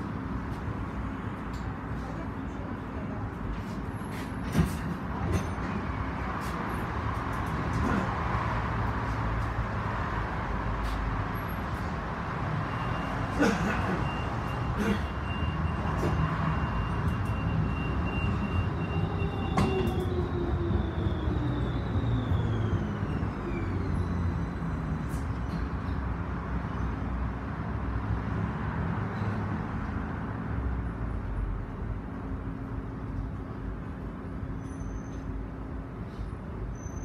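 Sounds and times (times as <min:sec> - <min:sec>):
tram rumbling: 0:00.0 - 0:37.0
tram motors whining while braking: 0:11.4 - 0:26.0.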